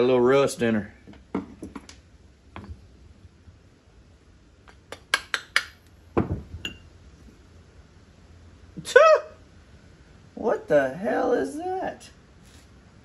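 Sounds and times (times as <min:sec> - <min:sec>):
dull knock: 0:06.2 - 0:06.5.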